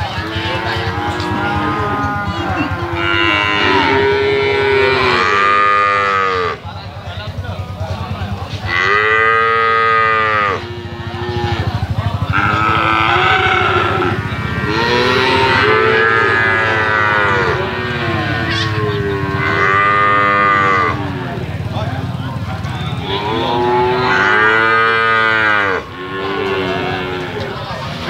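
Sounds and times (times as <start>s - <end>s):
calves mooing: 0.1s - 6.6s, 8.6s - 21.5s, 23.0s - 27.6s.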